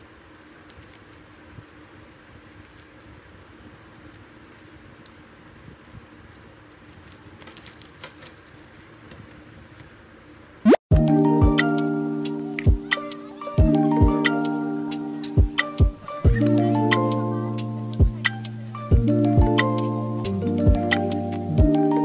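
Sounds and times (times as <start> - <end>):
plastic sleeves rustling and clicking: 0.0 - 10.0
faint steady hum: 0.0 - 22.0.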